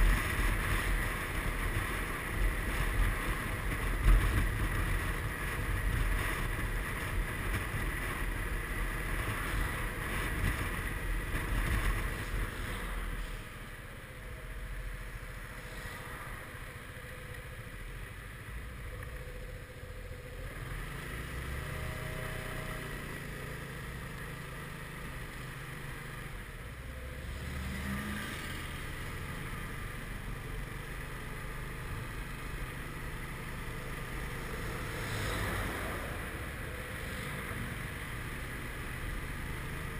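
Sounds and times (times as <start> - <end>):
wind noise: 0.0 - 13.4
scooter engine running: 28.4 - 39.9.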